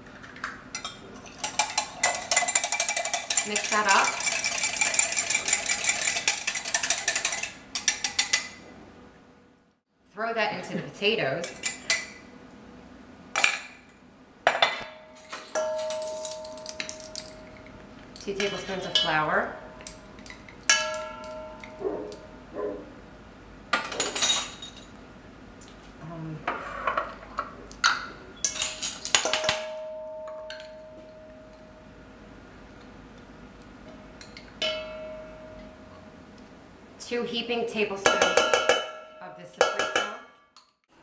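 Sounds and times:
clattering and scraping in metal bowl: 0.8 - 8.6
fork beating eggs in glass: 1.2 - 8.5
bowl ringing: 14.9 - 17.8, 18.4 - 22.5, 29.2 - 32.1, 34.2 - 36.3
spoon clinking against bowl: 15.5 - 17.7.

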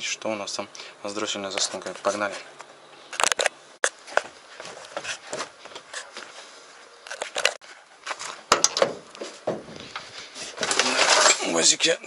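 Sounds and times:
footsteps on gravel: 3.2 - 6.5, 7.1 - 11.0
footsteps on wooden steps: 4.0 - 6.5, 7.6 - 10.8.

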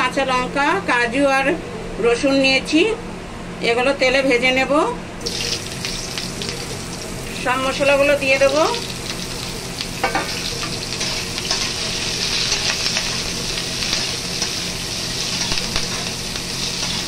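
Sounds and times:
food sizzling in hot oil: 5.2 - 17.0.

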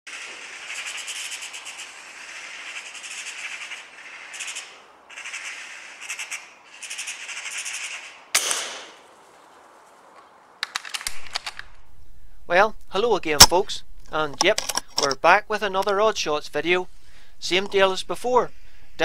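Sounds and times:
fast harsh rattling: 0.1 - 4.6
sharp gunshot-like crack: 8.4 - 9.0.

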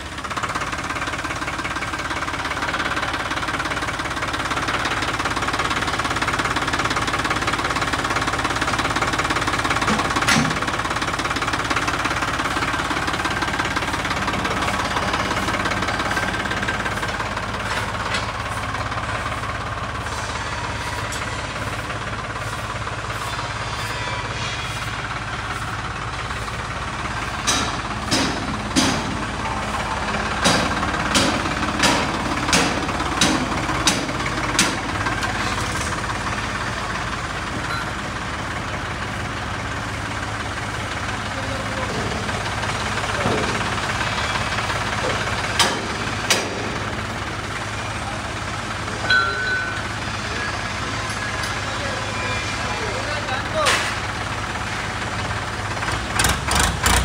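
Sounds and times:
tractor diesel engine running: 0.0 - 57.0
sharp knocks: 27.4 - 29.3, 30.4 - 34.8.

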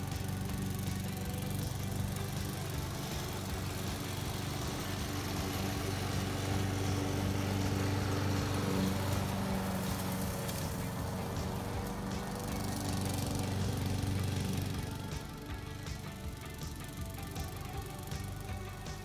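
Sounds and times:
lawn mower cutting grass: 0.0 - 19.0.

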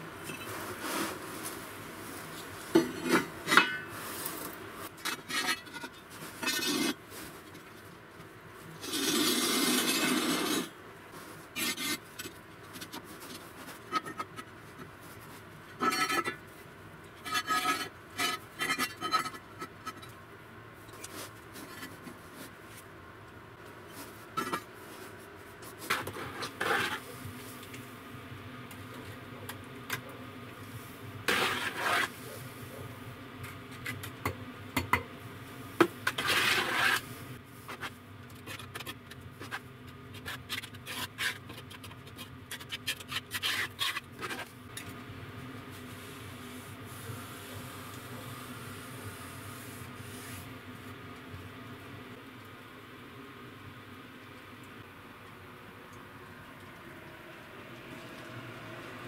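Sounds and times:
clinks of brick and metal: 2.8 - 3.9
mortar spread over bricks: 3.5 - 8.0, 8.6 - 16.3, 23.9 - 27.6, 30.7 - 32.7, 36.0 - 44.6.

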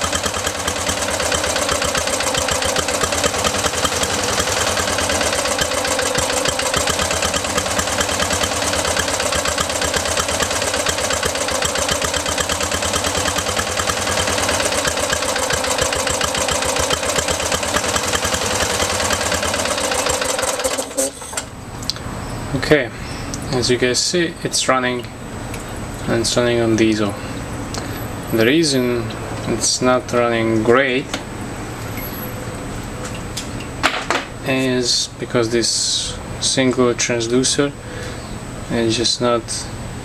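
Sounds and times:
small engine running rough: 0.0 - 21.5.

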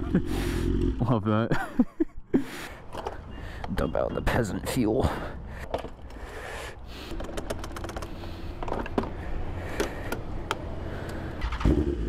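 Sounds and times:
motorcycle engine starting and running: 0.0 - 1.4, 7.0 - 12.0
handling clicks and knocks: 2.9 - 4.3, 5.6 - 6.2, 7.0 - 11.2.

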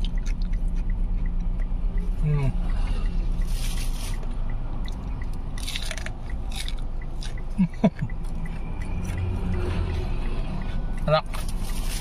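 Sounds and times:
person chewing crispy food: 0.0 - 0.8, 5.6 - 7.4.

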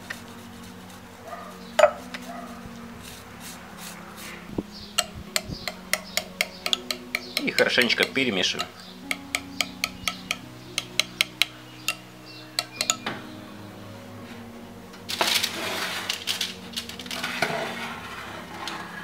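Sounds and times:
spoon clinking against glass bowl: 12.6 - 13.1
scraping noise: 15.1 - 19.0.

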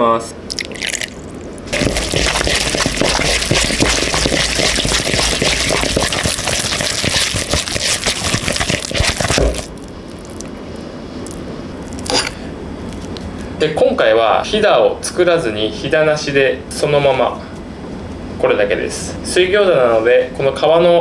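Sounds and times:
hand squelching minced meat: 1.7 - 10.6.

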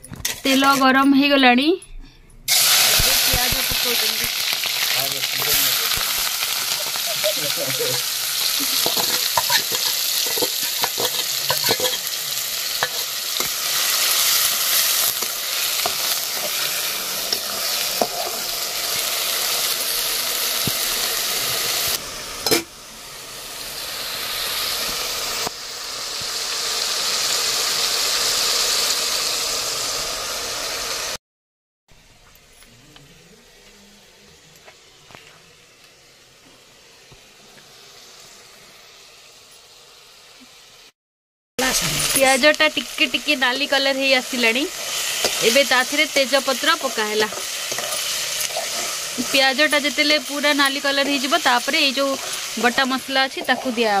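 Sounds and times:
metal spatula scraping pan: 0.2 - 1.0, 7.8 - 12.2, 46.8 - 49.4
onions sizzling in hot oil: 2.5 - 31.2, 33.4 - 41.0, 41.6 - 54.0.

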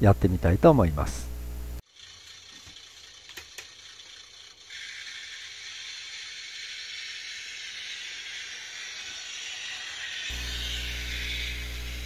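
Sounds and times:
model railcar engine sound: 1.8 - 12.0.

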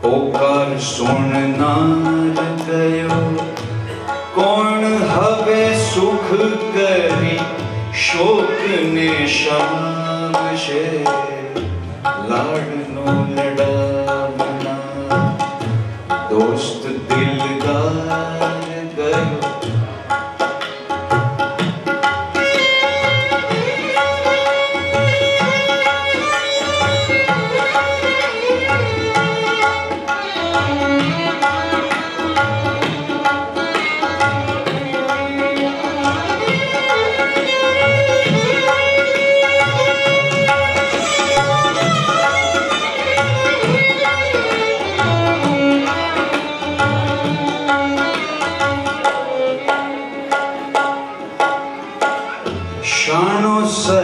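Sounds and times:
harmonium drone: 0.0 - 54.0
violin melody: 0.0 - 54.0
hand drum beat: 0.3 - 52.8.

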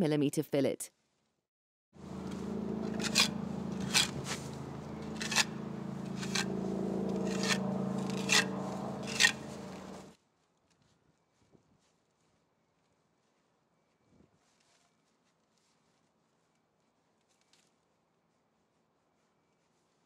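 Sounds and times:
steady low hum: 2.0 - 10.1
trowel scraping mortar: 2.2 - 6.5, 7.2 - 10.0.

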